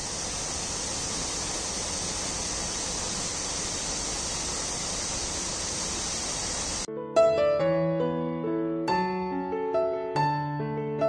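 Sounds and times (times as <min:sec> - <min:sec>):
waterfall rushing into pool: 0:00.0 - 0:06.9.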